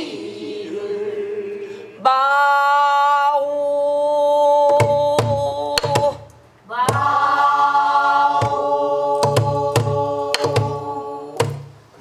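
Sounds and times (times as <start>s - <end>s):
barrel drum beaten with stick: 4.7s - 7.6s, 8.2s - 11.8s.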